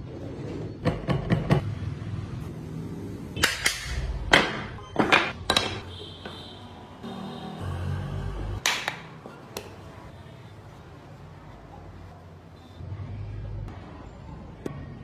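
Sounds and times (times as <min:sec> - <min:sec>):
wooden parts clacking: 0:03.4 - 0:05.8
wooden parts knocking on table: 0:03.4 - 0:05.8.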